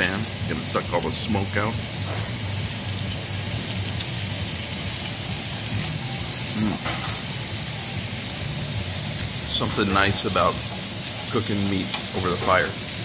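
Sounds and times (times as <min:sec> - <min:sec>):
meat sizzling on a grill: 0:00.0 - 0:13.0
ventilation fan humming: 0:00.0 - 0:13.0.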